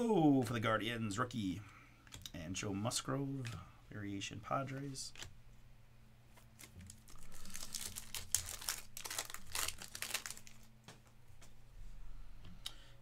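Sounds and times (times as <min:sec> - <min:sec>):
foil wrapper tearing and crinkling: 0:06.6 - 0:10.7.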